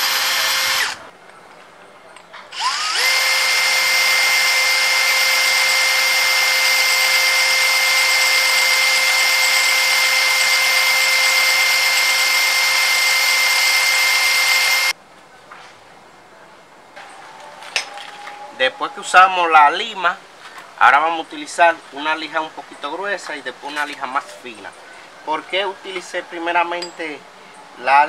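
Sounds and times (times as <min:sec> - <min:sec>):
cordless drill whining: 0:00.0 - 0:01.0, 0:02.5 - 0:14.9.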